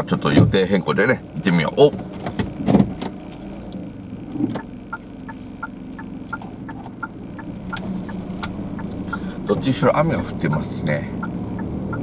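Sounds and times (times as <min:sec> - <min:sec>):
car engine hum: 0:00.0 - 0:12.0
turn signal ticking: 0:02.4 - 0:12.0.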